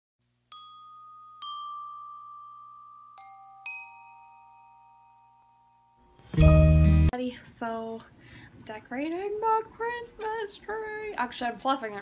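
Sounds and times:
bell-like chime notes: 0.5 - 7.1.

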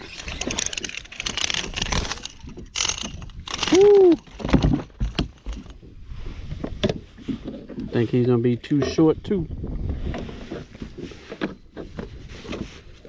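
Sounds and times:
fishing reel working: 0.0 - 4.0
handling clicks and knocks: 0.0 - 5.8.

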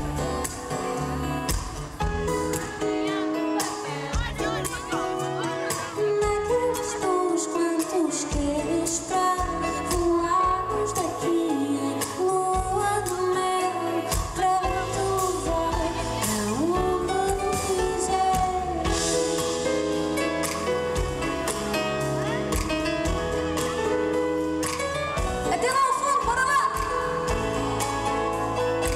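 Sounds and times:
woman singing: 0.0 - 19.6, 25.2 - 27.6
acoustic guitar: 0.0 - 28.9.

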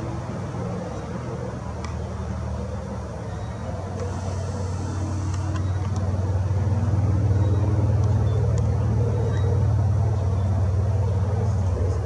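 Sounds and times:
low motor rumble: 0.0 - 12.0.

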